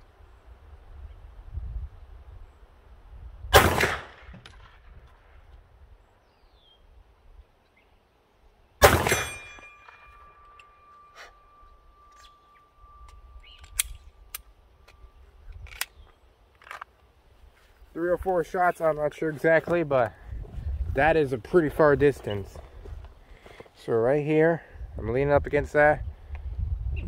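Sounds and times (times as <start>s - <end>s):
pistol shots with echo: 3.5s - 4.4s, 8.8s - 9.7s.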